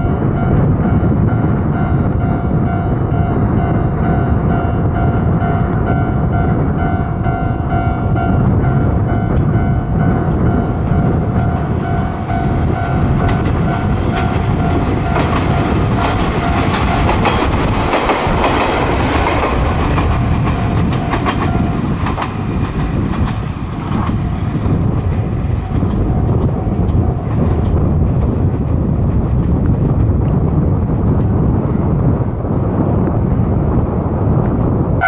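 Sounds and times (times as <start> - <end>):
train high whine: 0.0 - 29.4
train wheels clicking over rail joints: 9.3 - 30.4.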